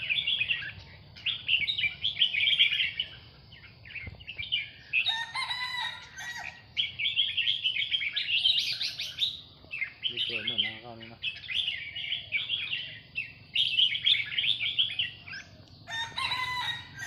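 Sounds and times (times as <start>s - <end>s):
birds warbling: 0.0s - 17.0s
rooster crowing: 5.0s - 6.7s, 15.8s - 17.0s.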